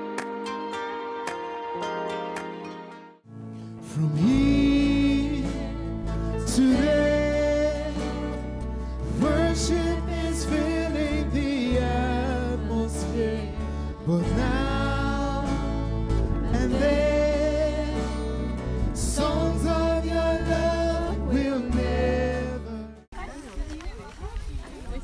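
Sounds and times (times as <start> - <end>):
keyboard: 0.0 - 23.1
acoustic guitar: 0.0 - 24.3
voices singing together: 9.1 - 15.7, 19.0 - 22.8.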